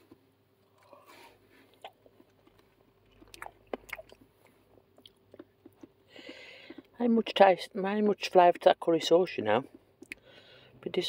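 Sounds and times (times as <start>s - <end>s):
chewing chips: 0.6s - 7.0s.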